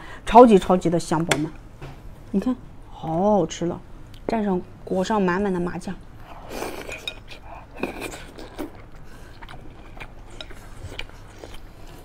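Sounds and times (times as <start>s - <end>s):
person chewing food: 6.2s - 12.0s.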